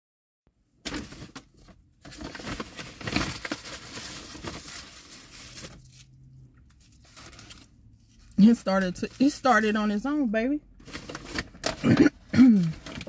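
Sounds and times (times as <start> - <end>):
paper wrapping crinkling: 0.9 - 6.1, 6.7 - 9.7.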